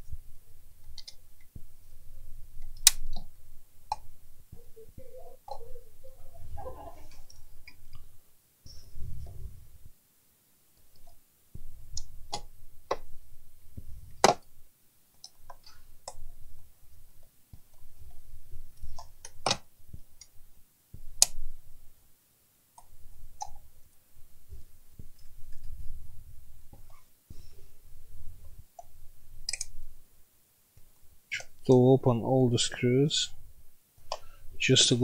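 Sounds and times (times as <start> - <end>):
rubbing and handling noise: 0.0 - 10.0.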